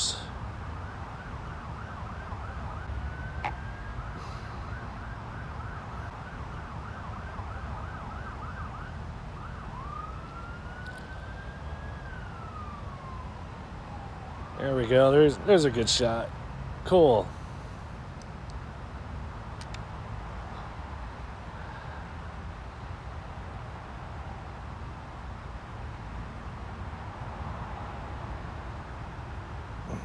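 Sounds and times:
emergency vehicle siren: 0.0 - 16.3, 24.9 - 30.0.

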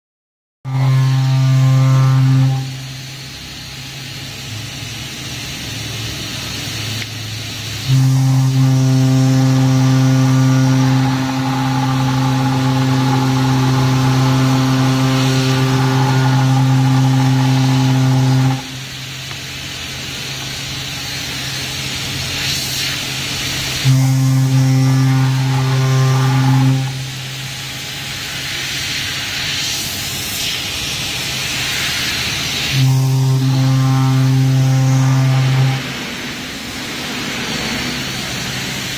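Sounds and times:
constant hiss: 0.8 - 38.9
router milling metal buzzing: 7.8 - 19.4.

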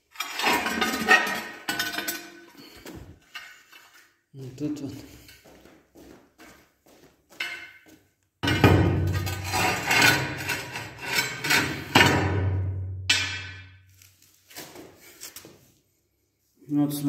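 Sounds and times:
plank scraping on concrete floor: 0.0 - 4.2, 9.0 - 12.2.

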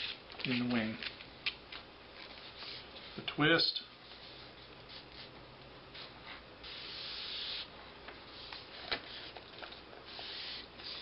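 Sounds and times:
paper sliding hiss: 2.3 - 3.2, 5.9 - 7.7, 8.3 - 9.4, 10.0 - 11.0.

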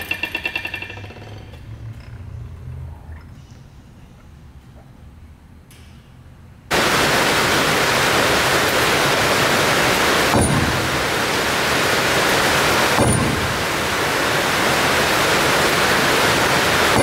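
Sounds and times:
loud steady rushing noise: 6.7 - 17.0.

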